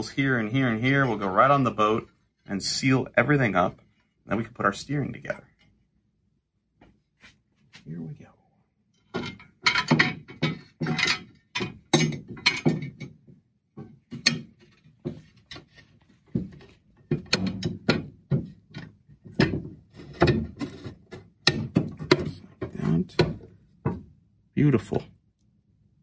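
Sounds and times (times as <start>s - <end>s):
metal parts clanking and rattling: 9.0s - 23.6s.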